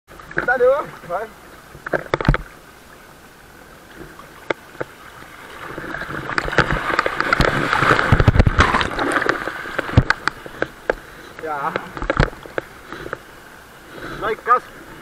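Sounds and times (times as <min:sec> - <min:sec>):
water rushing and splashing: 0:00.1 - 0:15.0
water thumping against camera: 0:01.7 - 0:02.6, 0:05.6 - 0:13.3.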